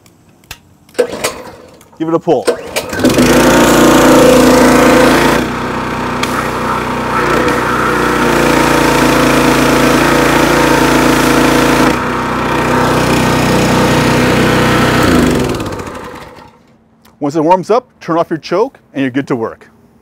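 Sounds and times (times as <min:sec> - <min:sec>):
petrol engine running: 0:02.4 - 0:16.7
high-pressure water spray hissing: 0:06.2 - 0:11.8.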